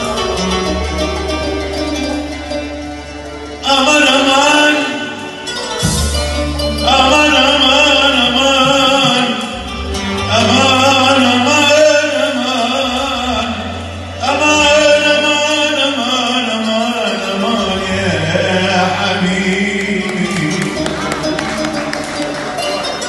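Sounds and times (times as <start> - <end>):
man singing ornamented phrases: 10.2 - 21.4.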